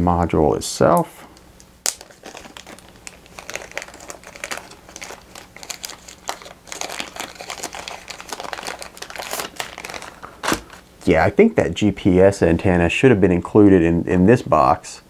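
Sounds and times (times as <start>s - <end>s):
plastic bag crinkling: 1.8s - 10.9s.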